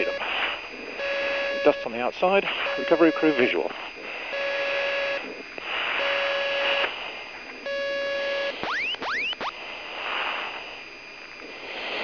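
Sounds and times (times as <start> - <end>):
radio hiss: 0.0 - 12.0
electronic beep tone: 2.7 - 3.5, 7.7 - 9.5
rising electronic chirps: 8.6 - 9.5.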